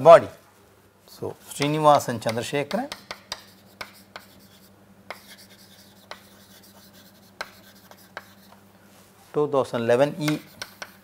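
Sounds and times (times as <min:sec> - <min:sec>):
chalk tapping on board: 0:01.6 - 0:08.6, 0:10.1 - 0:11.0
chalk scraping on chalkboard: 0:03.0 - 0:08.6, 0:10.1 - 0:11.0.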